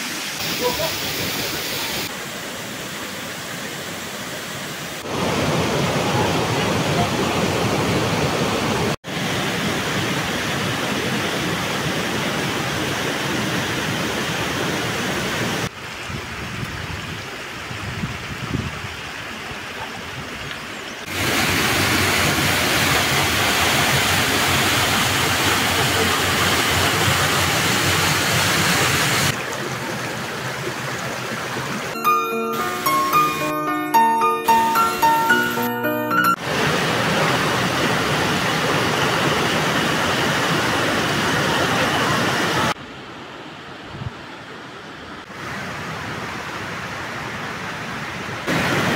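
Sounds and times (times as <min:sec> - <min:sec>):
waterfalls and rapids rushing: 0:00.0 - 0:48.9.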